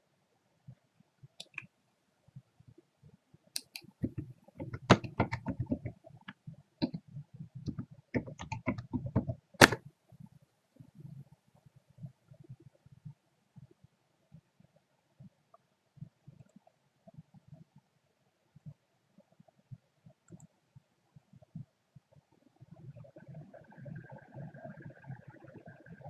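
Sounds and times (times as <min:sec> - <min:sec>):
computer keyboard typing: 0:03.6 - 0:06.1, 0:07.7 - 0:09.8.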